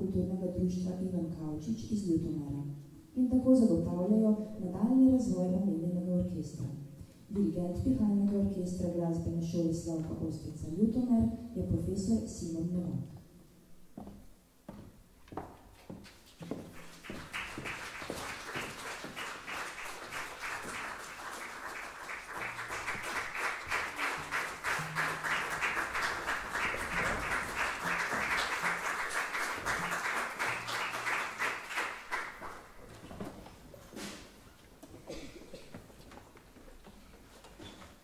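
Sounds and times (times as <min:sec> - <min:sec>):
audience applauding: 0:16.7 - 0:32.8.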